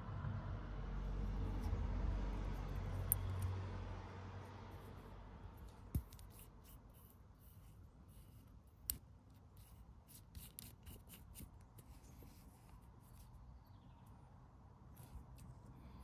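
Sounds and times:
fingers handling metal valve: 2.9s - 3.5s, 5.6s - 13.3s.

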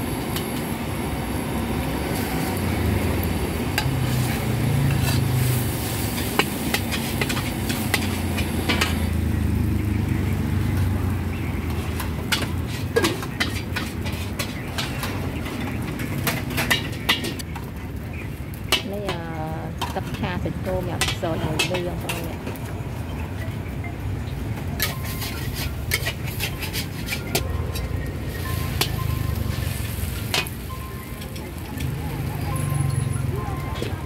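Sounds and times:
light sizzle of stir-frying: 0.0s - 34.0s
metal spatula scraping a wok: 2.1s - 2.6s, 3.8s - 9.2s, 11.6s - 17.4s, 21.0s - 22.6s, 24.8s - 30.6s.

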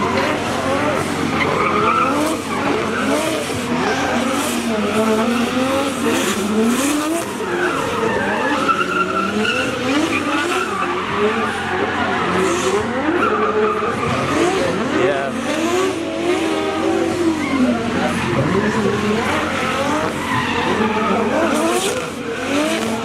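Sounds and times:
car engines revving: 0.0s - 23.0s
tyres squealing: 0.1s - 14.9s.

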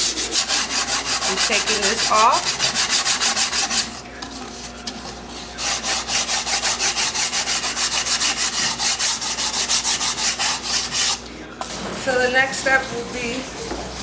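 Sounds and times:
sandpaper scrubbing cardboard: 0.0s - 4.0s, 5.4s - 11.2s.

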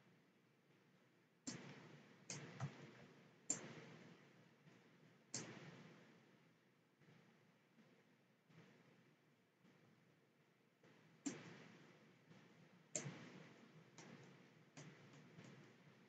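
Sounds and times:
computer mouse clicks: 2.3s - 3.8s, 13.0s - 13.2s, 14.0s - 15.8s.

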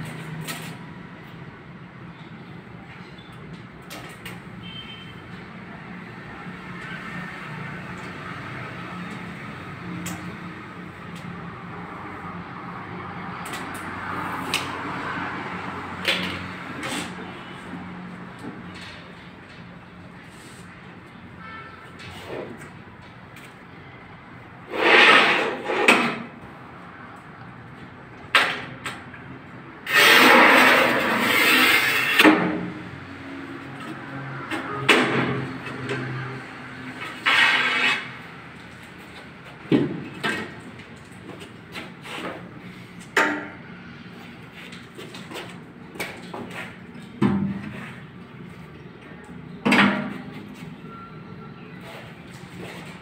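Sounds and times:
tile cutter scraping a tile: 24.7s - 26.2s, 29.9s - 32.3s, 37.2s - 38.2s.

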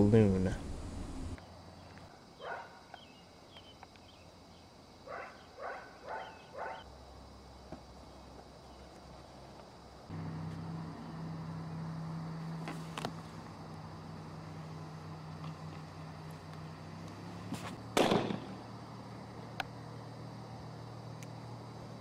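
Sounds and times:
steady low hum: 0.0s - 2.2s
dog barking: 2.4s - 2.9s, 5.0s - 6.8s.

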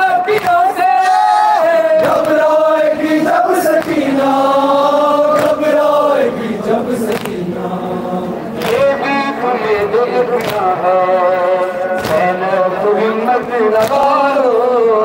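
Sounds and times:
men chanting in unison: 0.0s - 15.0s
chest-beating slaps: 3.6s - 4.1s, 5.3s - 5.7s, 7.0s - 7.4s, 8.6s - 8.9s, 10.4s - 10.7s, 11.9s - 12.3s.

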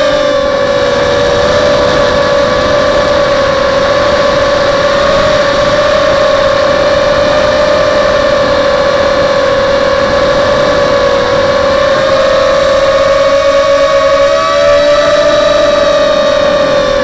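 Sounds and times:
quadcopter motors whining: 0.0s - 17.0s
wind rush on microphone: 0.0s - 17.0s.

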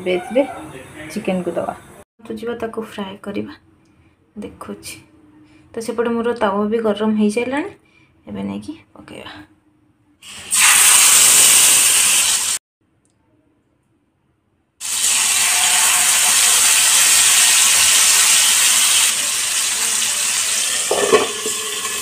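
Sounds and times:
chicken sizzling in hot oil: 10.2s - 12.6s, 14.8s - 22.0s.

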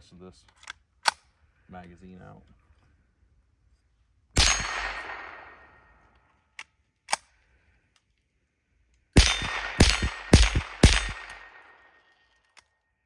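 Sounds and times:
rifle shot with echo: 4.4s - 5.9s, 9.2s - 12.1s.

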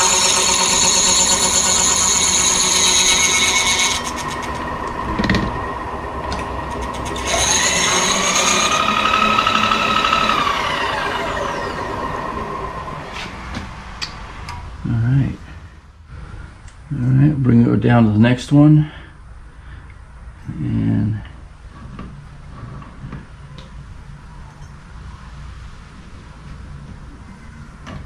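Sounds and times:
milling machine whine: 0.0s - 13.4s.

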